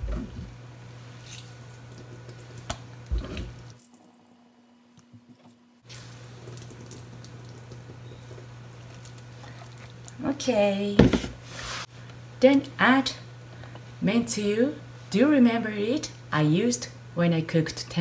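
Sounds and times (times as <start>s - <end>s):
steady low hum: 0.0s - 18.0s
wet squishes and drips: 1.3s - 4.1s, 5.8s - 10.2s.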